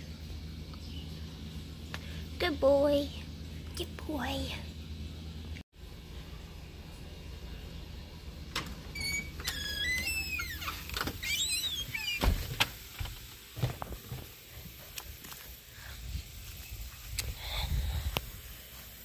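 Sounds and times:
door hinges squeaking: 8.6 - 12.7.

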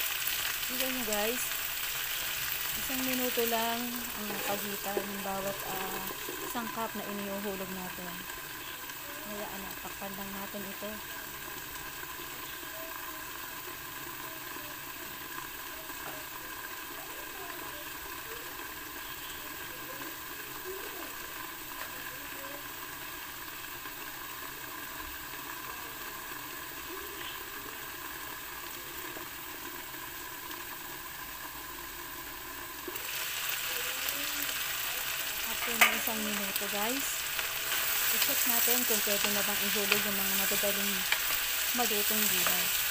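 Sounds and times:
food sizzling in a wok: 0.0 - 42.9.

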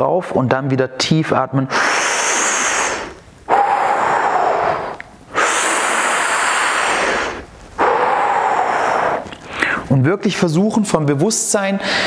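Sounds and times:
deep breathing: 1.7 - 9.9, 11.8 - 12.0.

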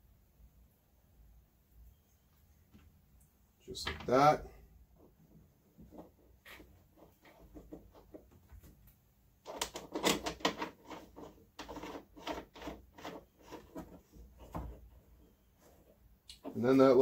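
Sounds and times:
small plastic clicks and knocks: 9.4 - 14.7.

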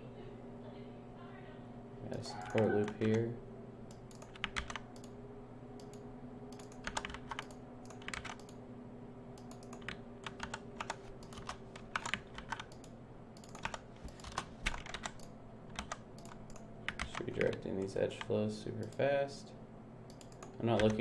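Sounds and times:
faint steady hum: 0.0 - 21.0
keyboard keys clacking: 5.8 - 8.5, 9.5 - 12.8.

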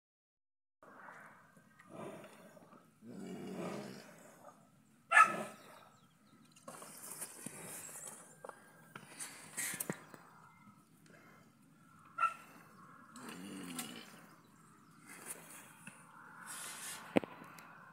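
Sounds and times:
cattle snuffling and shuffling: 6.4 - 11.0
loud animal call: 12.1 - 14.3.

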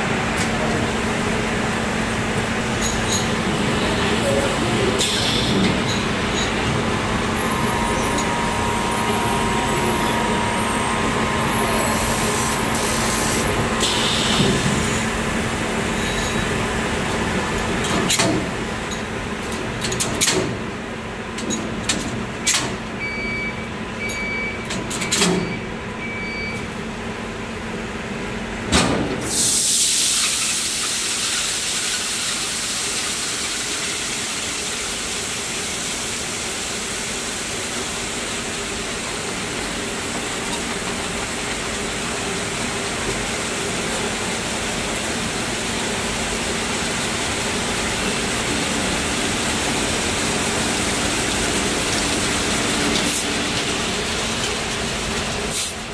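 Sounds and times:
machinery humming: 0.0 - 19.8, 36.0 - 55.9
short beeps: 7.4 - 12.9.

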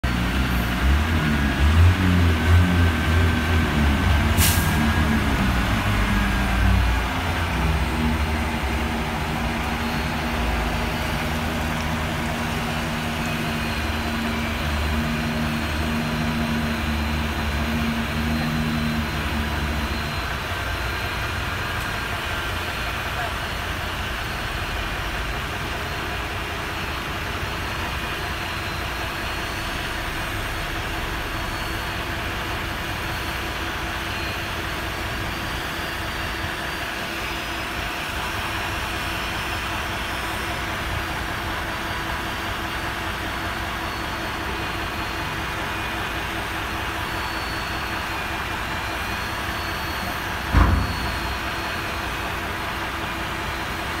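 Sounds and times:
diesel truck engine running: 0.0 - 54.0
loud thump of truck bed: 50.5 - 51.4.

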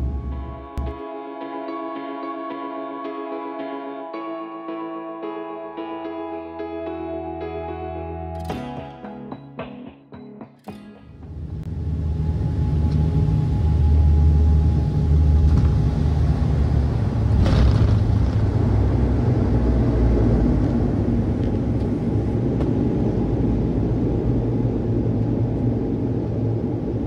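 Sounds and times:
turboprop engines droning in cabin: 0.0 - 1.0, 11.2 - 27.0.

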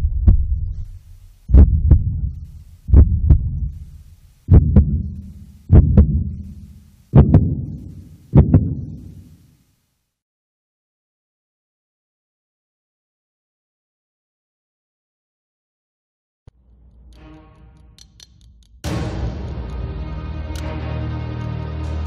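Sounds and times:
heartbeat thumps: 0.0 - 9.4.

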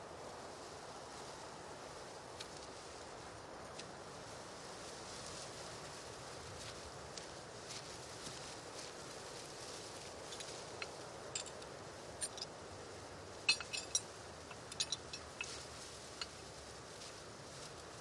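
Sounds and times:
steady background hiss: 0.0 - 18.0
hand tools clinking on machinery: 13.4 - 15.6.

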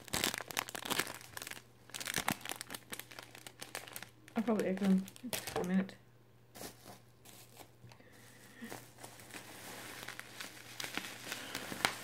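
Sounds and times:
bubble wrap crinkling: 0.0 - 5.9, 6.5 - 12.0.

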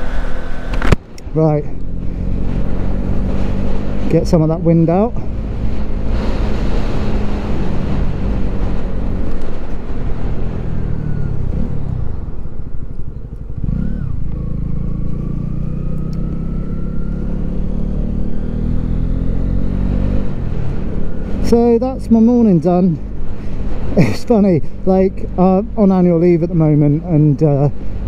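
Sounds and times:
motorcycle engine revving: 0.0 - 28.0
wind noise on microphone: 5.1 - 14.4.

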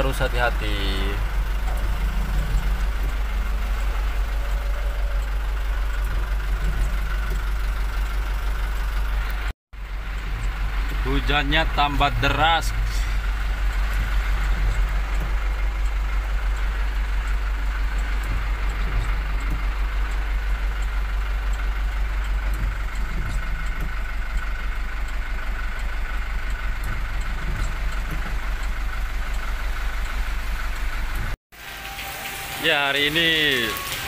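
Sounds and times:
truck engine rumbling: 0.0 - 34.0
heavy rain on windscreen: 29.6 - 34.0.

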